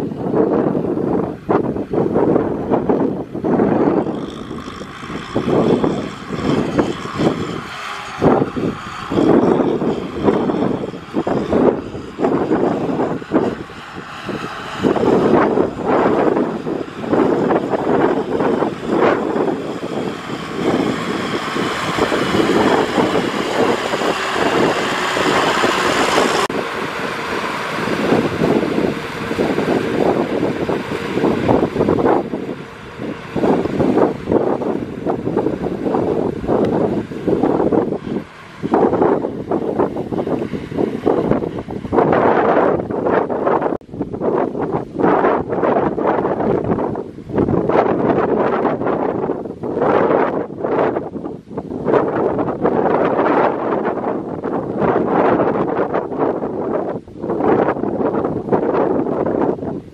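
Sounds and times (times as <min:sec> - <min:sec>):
tractor engine working under load: 0:00.0 - 0:43.6
wind buffeting microphone: 0:00.0 - 0:59.9.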